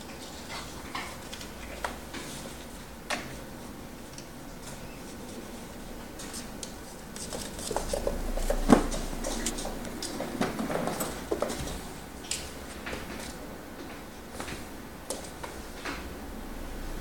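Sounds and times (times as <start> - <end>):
kitten paws skittering on floor: 5.1 - 13.4.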